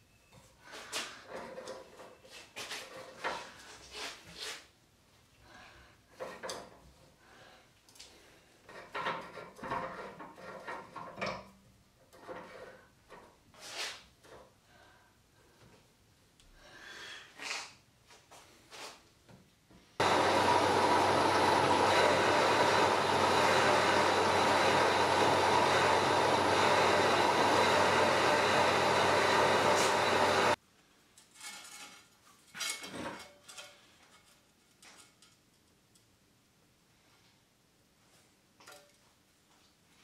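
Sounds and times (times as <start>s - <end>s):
milling machine whining: 20.0s - 30.6s.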